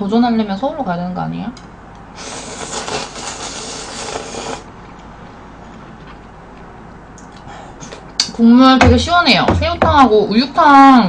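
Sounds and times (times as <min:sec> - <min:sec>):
person slurping noodles: 0:02.2 - 0:04.7.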